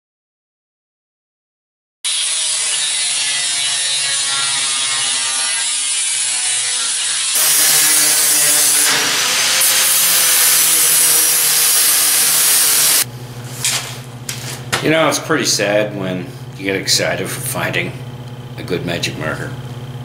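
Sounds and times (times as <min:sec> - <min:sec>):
power tool cutting sheet steel: 0:02.1 - 0:13.1
power tool whining: 0:02.1 - 0:13.1.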